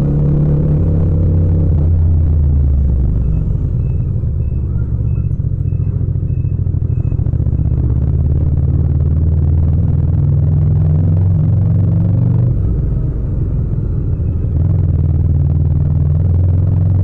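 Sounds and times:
motorcycle engine running: 0.0 - 17.0
faint high electronic beep: 3.1 - 7.2.

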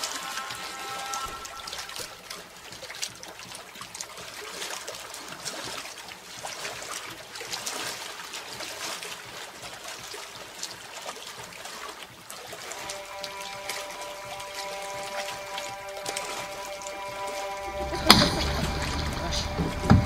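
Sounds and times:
water trickling and lapping: 0.0 - 20.0
kayaks knocking: 12.7 - 20.0.

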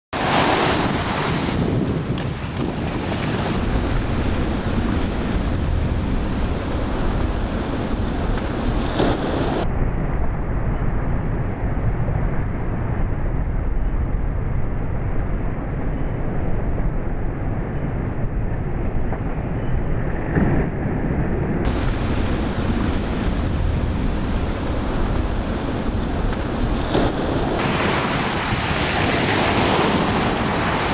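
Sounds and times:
ocean surf breaking on beach: 0.2 - 9.7, 21.7 - 30.9
wind buffeting microphone: 0.2 - 30.9.

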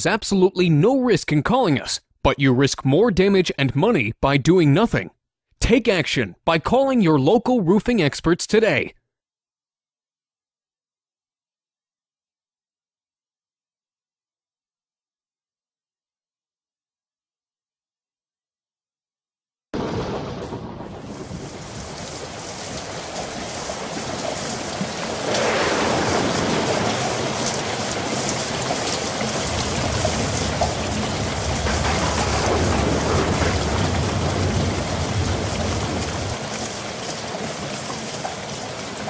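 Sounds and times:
low thunder rumble: 19.8 - 36.4
steady rain: 19.8 - 39.0.

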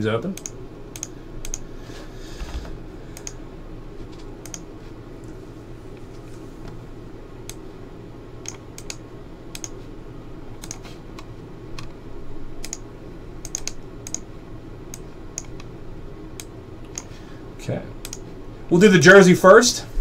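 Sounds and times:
steady low hum: 0.0 - 20.0
keyboard and mouse clicks: 0.4 - 1.6, 3.2 - 3.4, 4.4 - 4.7, 8.4 - 9.8, 10.6 - 12.0, 12.6 - 12.8, 13.4 - 14.2, 14.9 - 15.7, 16.4 - 17.1, 18.0 - 18.2.

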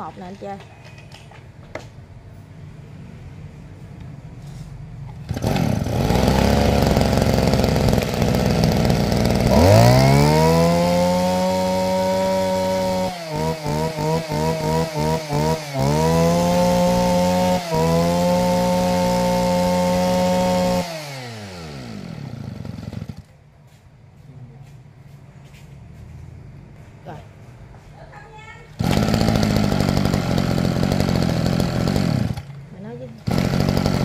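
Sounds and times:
brush-cutter engine revving: 5.1 - 23.3, 28.8 - 34.0.

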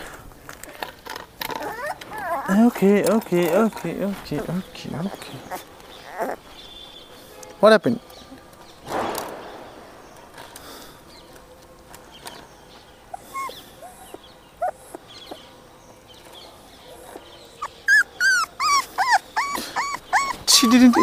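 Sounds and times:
puppies whimpering: 1.4 - 7.2, 13.0 - 15.5, 16.8 - 21.0.

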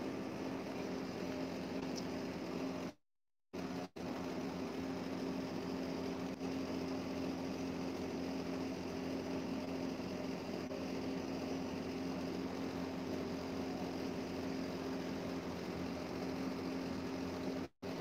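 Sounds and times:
machine hum: 0.0 - 3.0, 3.6 - 18.0.

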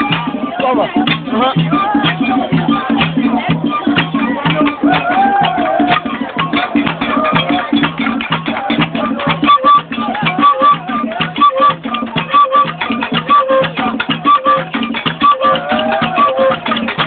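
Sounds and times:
fast percussion strikes: 0.0 - 17.0
short repeated pitched notes: 9.3 - 16.6.

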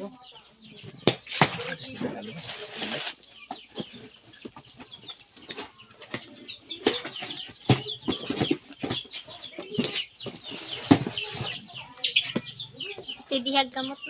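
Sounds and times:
cardboard rustling and knocking: 1.0 - 11.7.

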